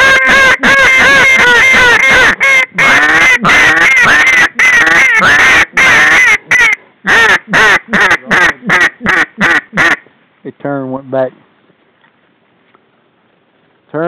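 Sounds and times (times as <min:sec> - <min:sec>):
goose call honks and clucks: 0:00.0 - 0:10.0.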